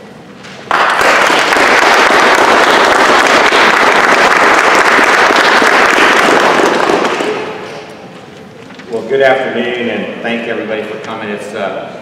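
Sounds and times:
audience applauding: 0.7 - 7.7.

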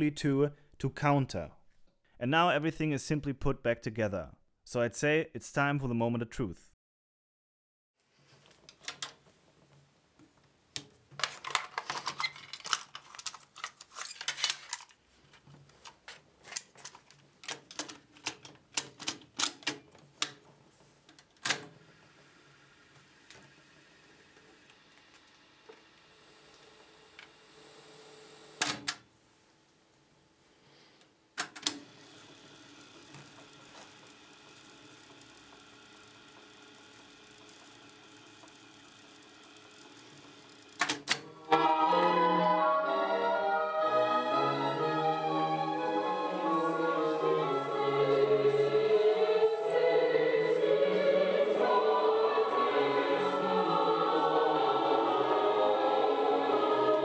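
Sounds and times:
faint cassette mechanism hum: 31.4 - 41.4
choir singing with orchestra: 41.4 - 57.0.

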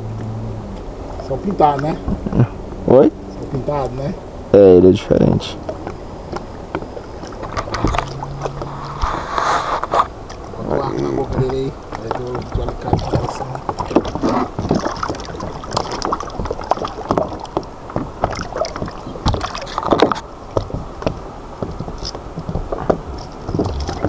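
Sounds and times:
water splashing and sloshing: 0.0 - 24.0.

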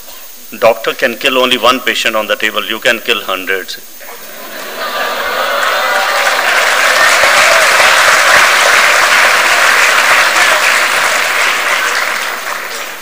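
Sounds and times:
audience applauding: 4.3 - 13.0.

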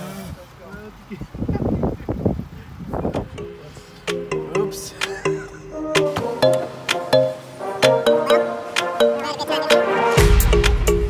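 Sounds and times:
background music with short notes: 3.3 - 11.0.

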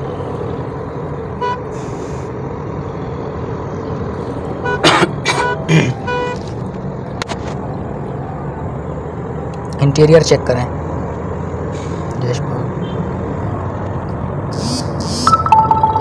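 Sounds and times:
car interior road noise: 0.0 - 16.0
short beeps: 14.6 - 16.0.

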